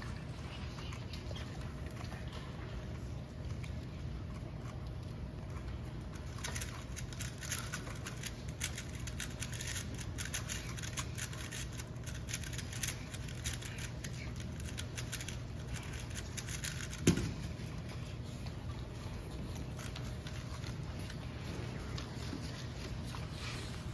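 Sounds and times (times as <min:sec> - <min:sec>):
puzzle cube turning clicks: 0:06.4 - 0:17.4.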